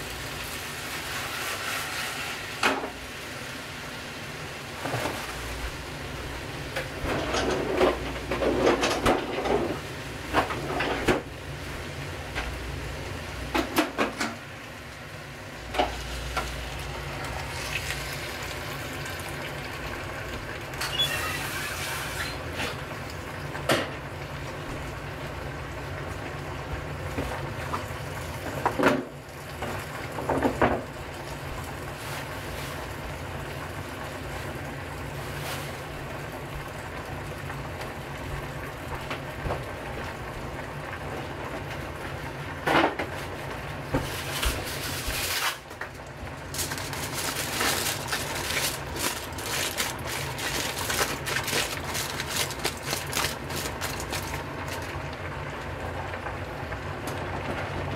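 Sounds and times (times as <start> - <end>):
gas burner hissing: 0.0 - 8.5
aluminium foil crumpling: 44.1 - 55.0.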